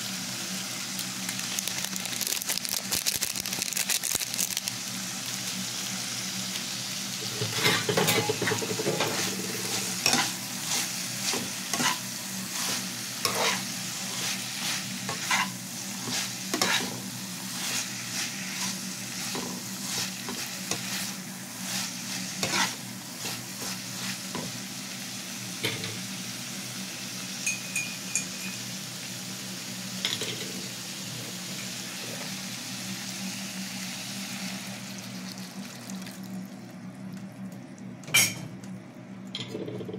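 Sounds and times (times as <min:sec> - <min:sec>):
vegetables sizzling in a frying pan: 0:00.0 - 0:36.5
spatula scraping and knocking pan: 0:15.1 - 0:17.0, 0:21.7 - 0:24.5.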